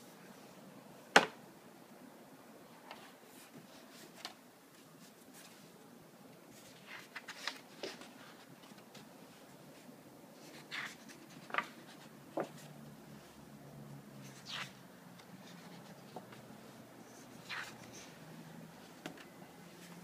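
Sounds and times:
sketchbook pages turning: 6.5s - 9.1s, 10.4s - 12.8s, 14.2s - 16.5s, 17.2s - 18.2s.

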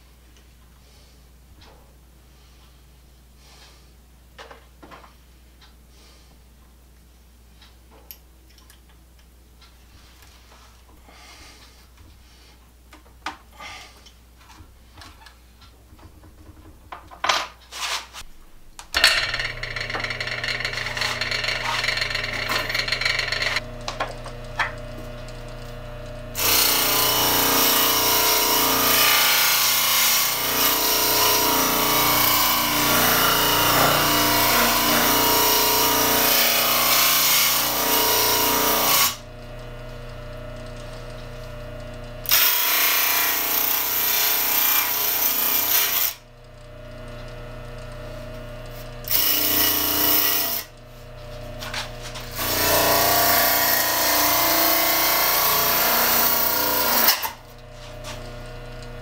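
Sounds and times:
grinding on abrasive wheel: 19.0s - 23.6s
electric motor humming: 19.0s - 59.0s.

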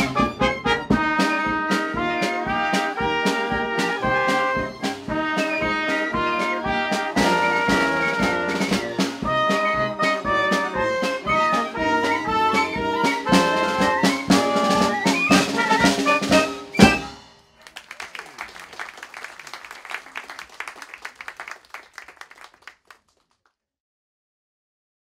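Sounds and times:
ragtime orchestra playing: 0.0s - 18.2s
audience applause: 17.6s - 23.5s.

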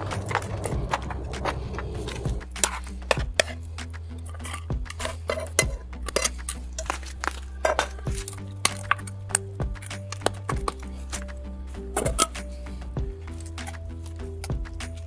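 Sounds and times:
metal spatula scraping a pan: 4.2s - 7.0s.

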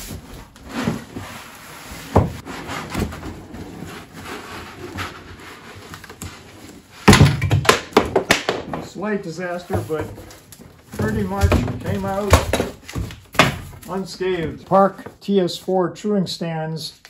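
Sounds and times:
cardboard scraping and rustling: 0.0s - 7.0s
loud knocks and clatter: 7.1s - 8.9s.

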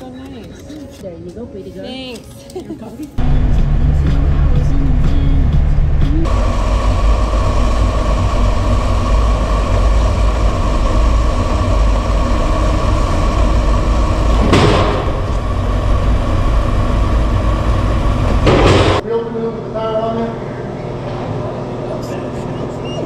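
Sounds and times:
car engine running: 3.2s - 19.0s.

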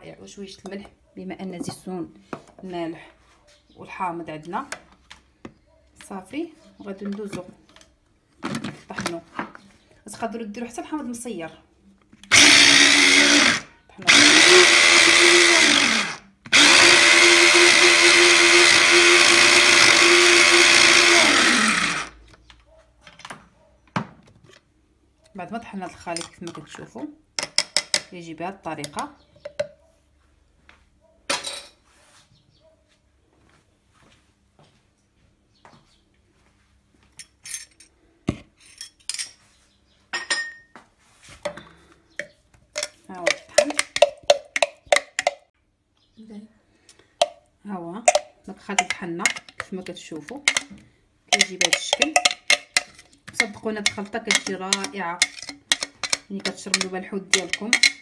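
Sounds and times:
electric food chopper whirring: 12.3s - 22.2s
dishes and spoon clinking: 40.1s - 40.8s, 51.3s - 58.0s.

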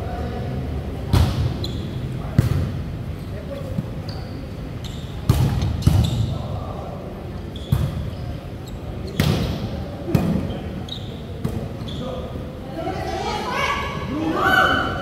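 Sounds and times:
players' voices: 0.0s - 15.0s.

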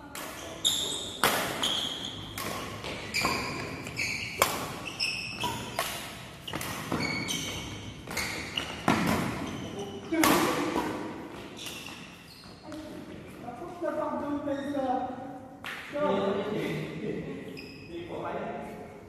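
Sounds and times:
rackets hitting shuttlecock: 0.1s - 12.8s.

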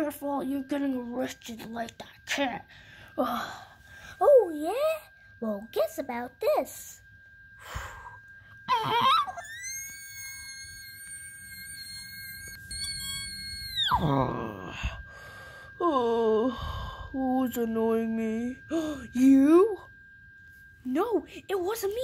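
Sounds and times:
child screaming: 8.7s - 14.5s.

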